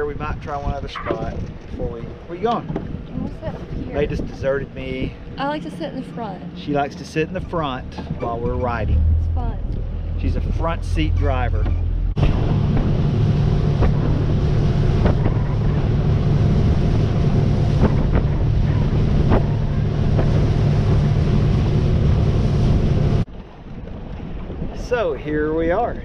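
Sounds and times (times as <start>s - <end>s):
wind buffeting microphone: 0.0s - 26.0s
boat motor droning: 0.9s - 24.7s
hull slapping waves: 6.8s - 26.0s.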